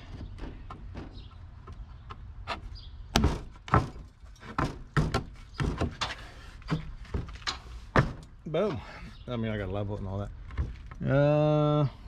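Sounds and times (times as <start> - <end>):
wooden knocks and thuds: 0.0 - 8.3.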